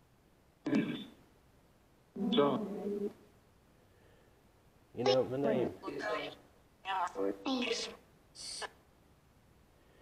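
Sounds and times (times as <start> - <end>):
faint steady hiss: 0.0 - 10.0
garbled voice from speaker: 0.6 - 1.2, 2.2 - 3.2, 5.0 - 8.8.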